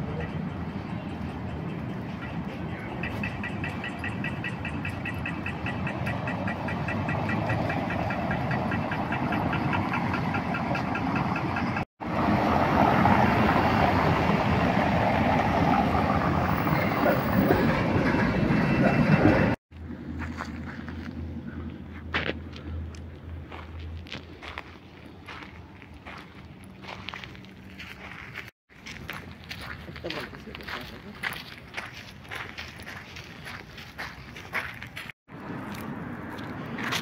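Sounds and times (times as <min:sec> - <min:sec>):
passing vehicles: 0:00.0 - 0:28.5, 0:33.1 - 0:37.0
street traffic: 0:00.0 - 0:37.0
crossing signal beeping rapidly: 0:00.2 - 0:11.8, 0:15.6 - 0:19.6.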